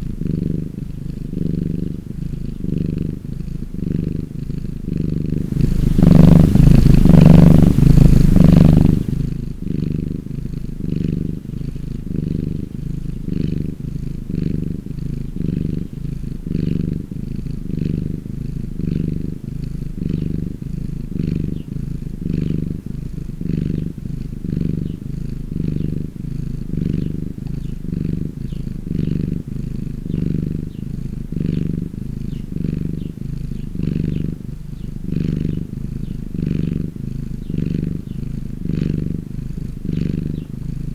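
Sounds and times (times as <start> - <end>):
cat purring: 0.0 - 40.9
hissy sound: 5.4 - 9.2.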